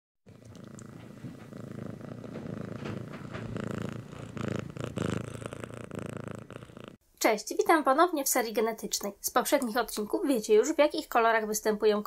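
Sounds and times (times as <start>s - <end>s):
cat purring: 0.2s - 7.0s.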